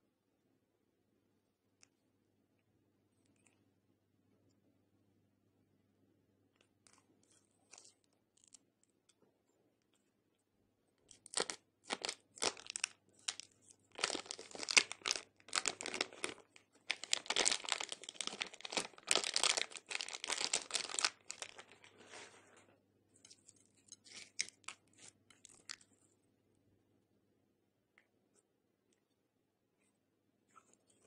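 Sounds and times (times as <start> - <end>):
plastic bag crinkling: 11.1 - 22.4.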